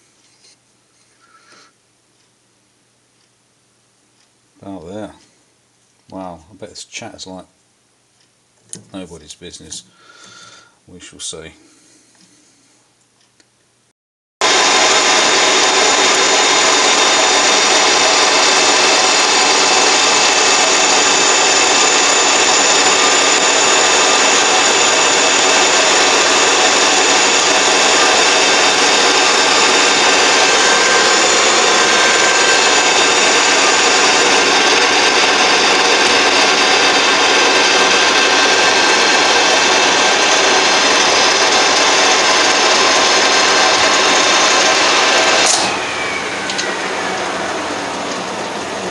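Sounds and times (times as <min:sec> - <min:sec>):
metal lathe boring with chatter: 0:14.4 - 0:48.9.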